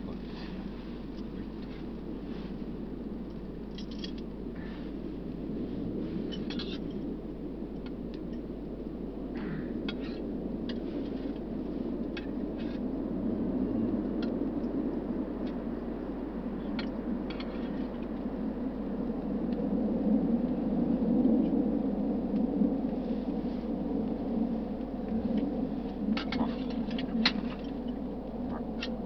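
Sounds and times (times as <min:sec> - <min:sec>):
low rushing rumble: 0:00.0 - 0:29.0.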